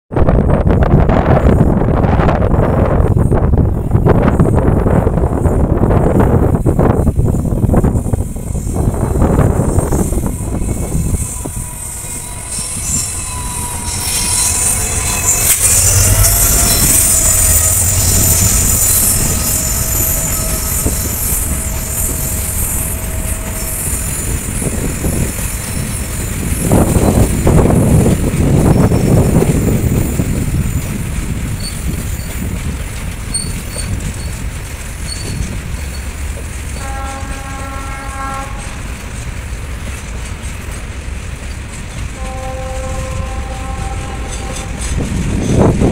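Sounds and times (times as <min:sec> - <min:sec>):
freight train passing: 0:00.1 - 0:45.9
train horn: 0:08.5 - 0:26.0, 0:36.7 - 0:38.9, 0:42.1 - 0:45.2
wagon wheels clattering on rails: 0:30.7 - 0:37.6.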